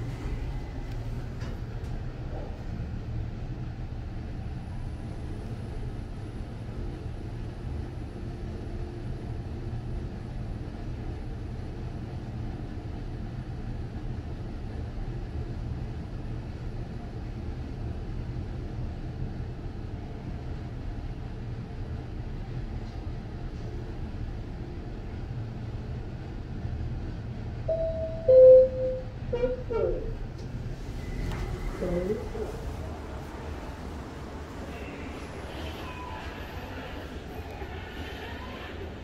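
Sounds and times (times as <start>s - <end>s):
lift car rumble: 25.1s - 39.0s.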